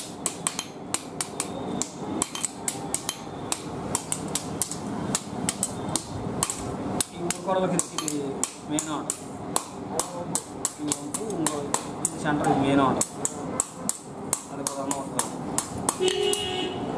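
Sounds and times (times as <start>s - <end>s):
hammer on hot metal on anvil: 0.0s - 12.2s, 13.0s - 16.3s.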